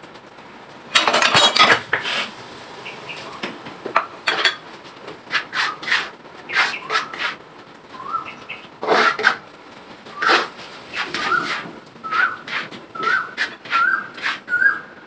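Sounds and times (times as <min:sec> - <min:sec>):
metal spatula scraping a wok: 0:01.0 - 0:02.3, 0:04.3 - 0:04.6, 0:05.3 - 0:07.4, 0:08.8 - 0:09.4, 0:10.2 - 0:14.6.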